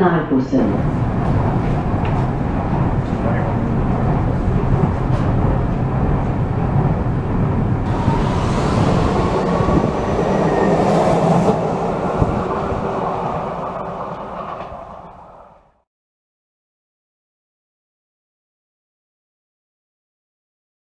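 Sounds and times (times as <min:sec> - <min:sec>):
metro train rumbling on rails: 0:00.0 - 0:15.9.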